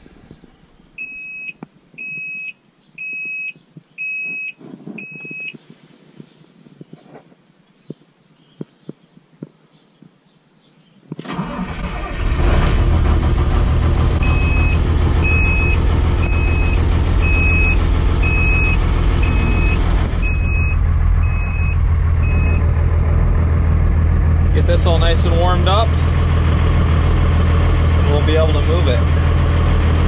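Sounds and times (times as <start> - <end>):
diesel engine starting and idling: 11.2 - 30.0
warning beeper: 14.1 - 22.8.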